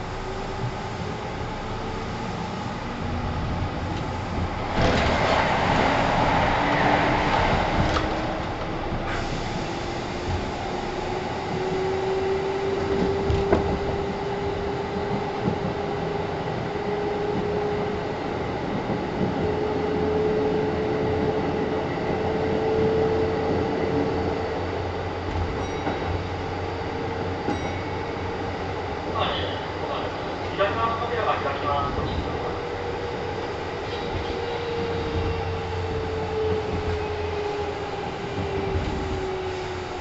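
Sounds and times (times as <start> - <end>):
wheels rumbling on rail: 0.0 - 40.0
rail joint clacks: 3.8 - 11.9, 12.6 - 16.7, 25.2 - 37.4.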